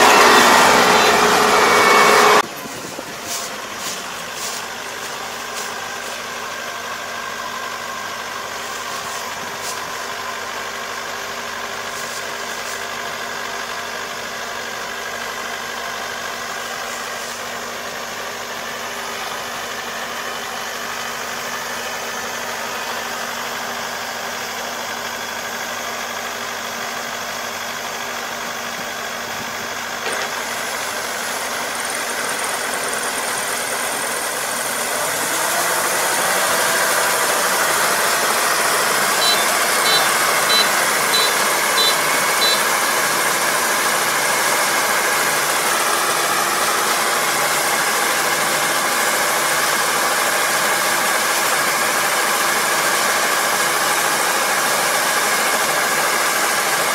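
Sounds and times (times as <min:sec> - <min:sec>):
combine harvester engine running: 0:00.0 - 0:56.9
short high beeps: 0:39.2 - 0:42.7.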